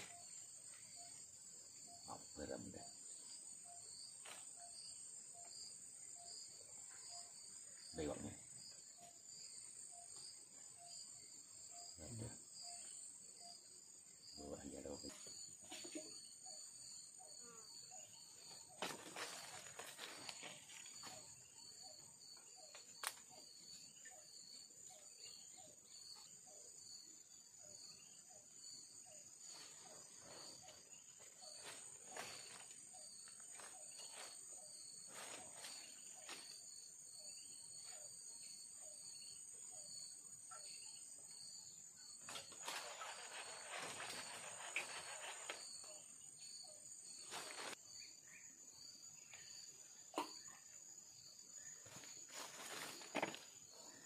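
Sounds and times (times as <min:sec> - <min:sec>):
forest insects shrilling: 0:42.0 - 0:48.0.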